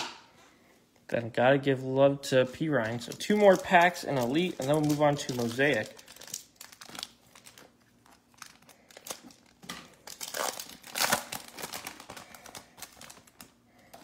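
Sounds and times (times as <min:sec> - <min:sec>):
foil wrapper tearing and crinkling: 0:02.6 - 0:14.0.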